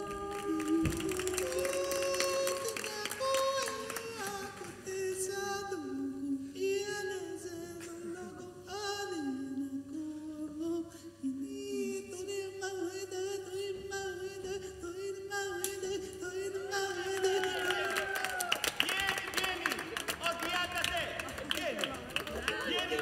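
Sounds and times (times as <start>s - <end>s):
a cappella group singing: 0.0s - 18.1s.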